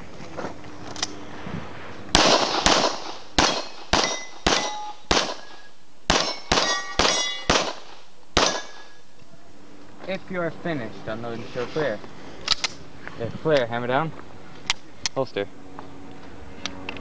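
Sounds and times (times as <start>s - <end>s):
pistol shots: 2.2s - 9.0s
steel plate ringing: 3.4s - 7.6s.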